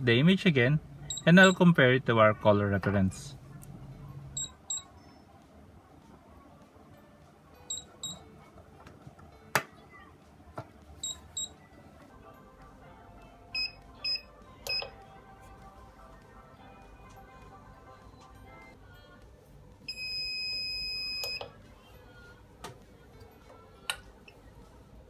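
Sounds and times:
short electronic beeps: 0:01.1 - 0:01.6, 0:04.4 - 0:05.0, 0:07.7 - 0:08.2, 0:11.0 - 0:11.6, 0:13.6 - 0:14.9
lower-pitched beeps: 0:04.4 - 0:05.2.

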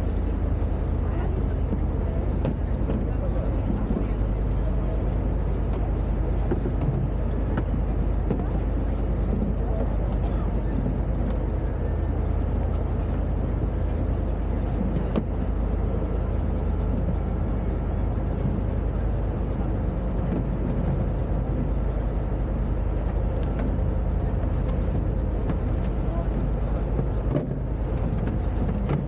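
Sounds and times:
boat engine droning: 0:00.0 - 0:29.0.

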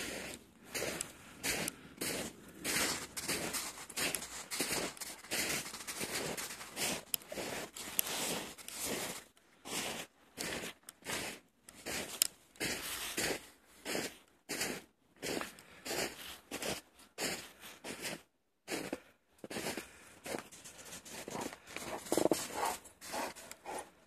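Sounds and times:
snow crunching: 0:00.0 - 0:24.0.

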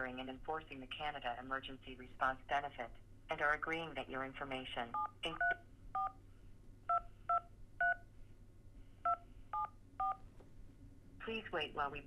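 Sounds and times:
keypad touch-tone beeps: 0:06.9 - 0:08.0, 0:09.1 - 0:10.2.

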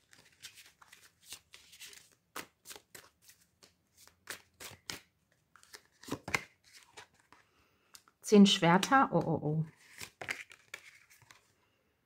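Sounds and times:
cards being shuffled: 0:00.0 - 0:08.2, 0:09.7 - 0:11.5.

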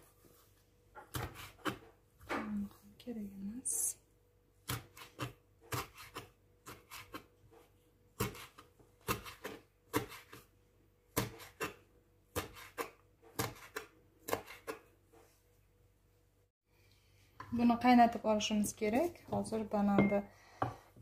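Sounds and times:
knife chopping on wooden board: 0:01.0 - 0:02.4, 0:04.7 - 0:07.3, 0:08.2 - 0:10.4, 0:11.1 - 0:14.9.

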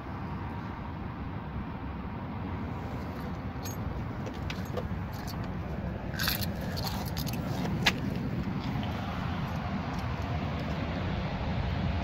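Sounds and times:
steady low rumble: 0:00.0 - 0:12.0
metallic clicks and jingles: 0:03.2 - 0:08.0.

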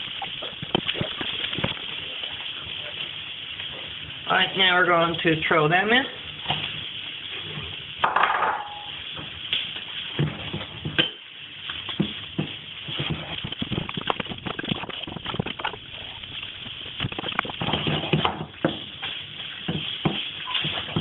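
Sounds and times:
food sizzling in a frying pan: 0:00.0 - 0:21.0
food and utensil clattering on pan: 0:07.4 - 0:21.0.

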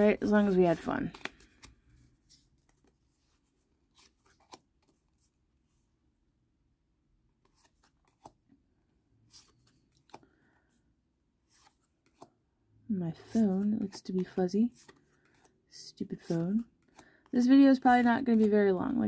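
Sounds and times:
trading cards clicking and rustling: 0:00.7 - 0:03.0, 0:07.5 - 0:08.4, 0:09.3 - 0:10.4, 0:13.2 - 0:19.0.

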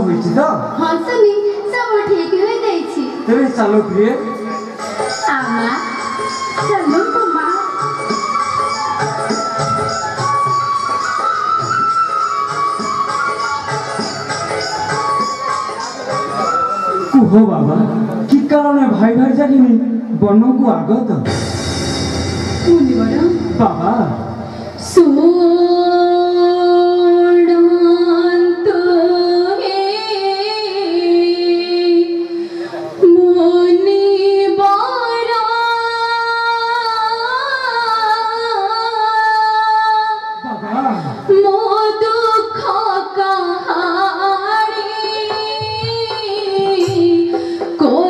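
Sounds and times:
musical accompaniment: 0:00.0 - 0:18.6, 0:20.8 - 0:35.0.

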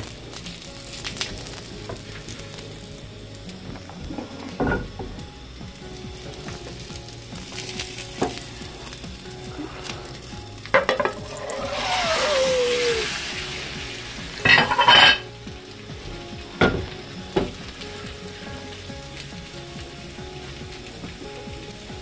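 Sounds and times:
oil sizzling: 0:00.0 - 0:22.0
metal pans clanking: 0:04.1 - 0:05.1, 0:10.7 - 0:11.8, 0:14.5 - 0:15.2.

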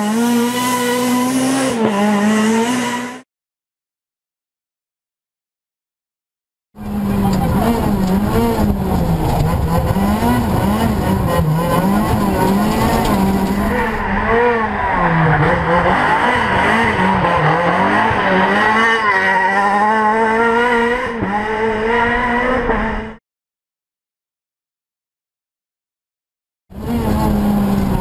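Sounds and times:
rally car engine revving: 0:00.0 - 0:03.2, 0:06.8 - 0:23.2, 0:26.8 - 0:28.0.

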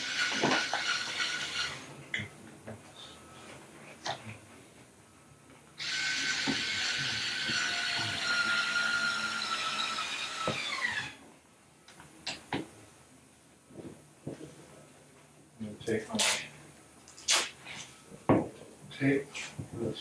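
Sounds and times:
cordless screw gun whining: 0:00.0 - 0:01.9, 0:05.8 - 0:11.2.

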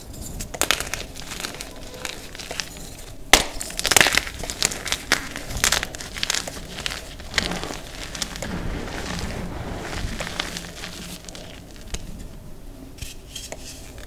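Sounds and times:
chalk cracking and snapping: 0:00.4 - 0:12.3
chalk crumbling powdery: 0:00.5 - 0:12.3.

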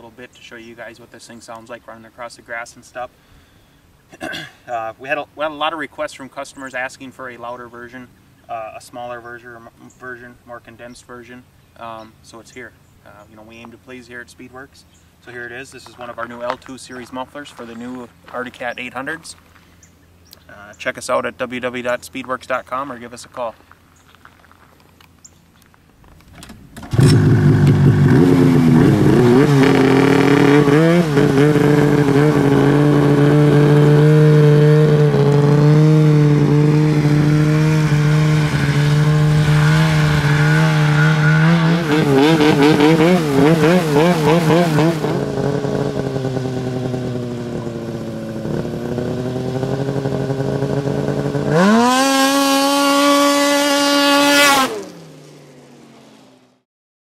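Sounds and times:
snowmobile engine revving: 0:26.9 - 0:55.1.

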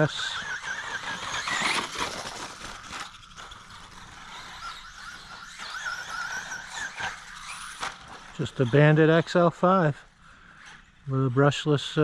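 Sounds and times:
chassis rattle: 0:00.0 - 0:09.4
electric motor whine: 0:00.0 - 0:09.4
tyres scrabbling on dirt: 0:00.0 - 0:09.6.

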